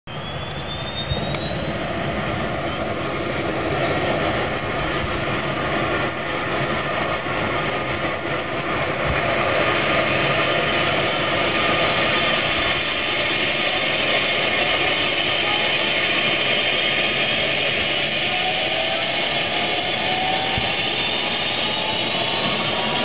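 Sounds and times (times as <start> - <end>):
engine and rotor rushing noise: 0.1 - 23.0
helicopter turbine whine: 0.1 - 23.0.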